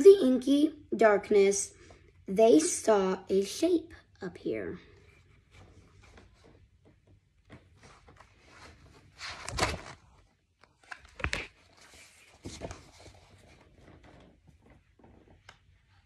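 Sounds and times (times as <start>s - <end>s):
book pages rustling: 5.0s - 16.0s.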